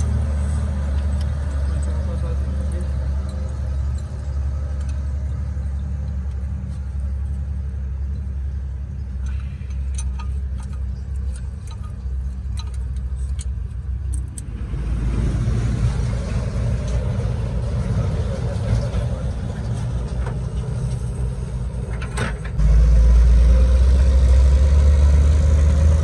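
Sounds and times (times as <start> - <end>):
rustling metal clatter: 9.2 - 14.4
metal tool clicks: 9.2 - 14.5.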